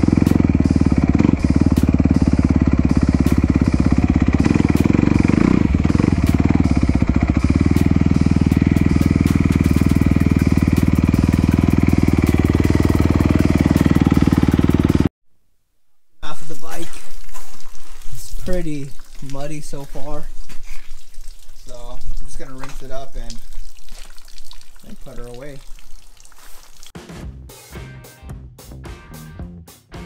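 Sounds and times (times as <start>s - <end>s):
dirt bike engine running: 0.0s - 15.1s.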